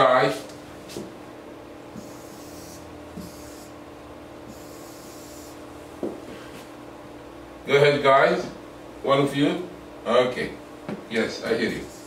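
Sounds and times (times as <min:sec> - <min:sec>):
pen scratching on whiteboard: 0:02.0 - 0:03.7, 0:04.5 - 0:05.6.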